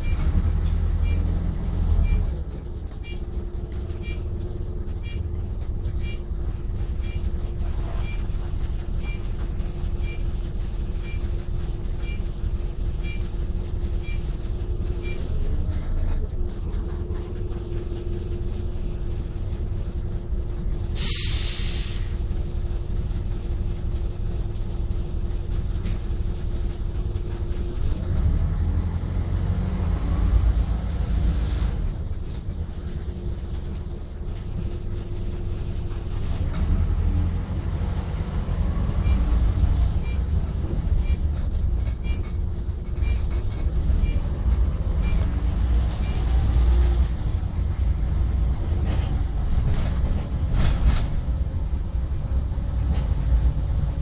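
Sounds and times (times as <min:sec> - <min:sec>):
bus diesel engine running: 0:00.0 - 0:54.0
air brakes hissing: 0:21.0 - 0:22.2.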